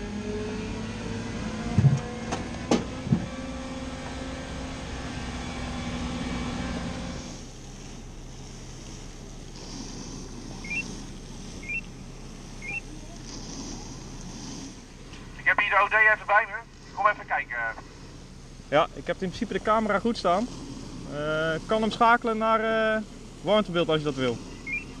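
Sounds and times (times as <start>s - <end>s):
truck engine and hydraulic hum: 0.0s - 25.0s
short rising beeps: 10.6s - 10.8s, 11.6s - 11.9s, 12.6s - 12.9s, 24.6s - 25.0s.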